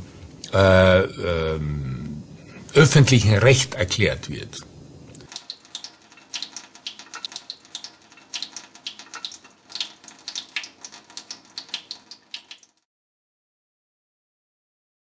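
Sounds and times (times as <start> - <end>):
running water splashing and trickling: 5.2 - 12.8.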